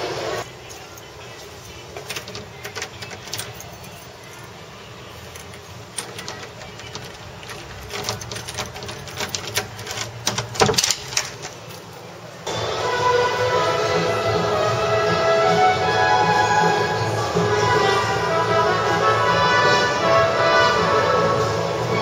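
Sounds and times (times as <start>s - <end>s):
door knob rattling clicks: 2.0s - 4.0s, 5.4s - 11.9s.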